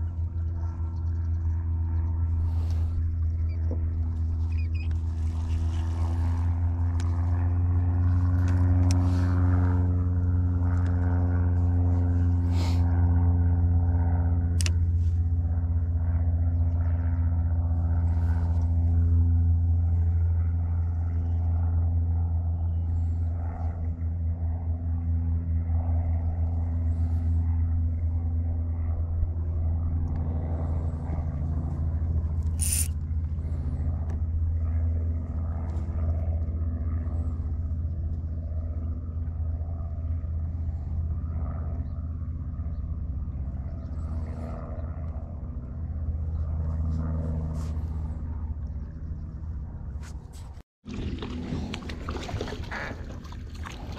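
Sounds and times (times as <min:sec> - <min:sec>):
electric motor humming: 0:32.4 - 0:33.1.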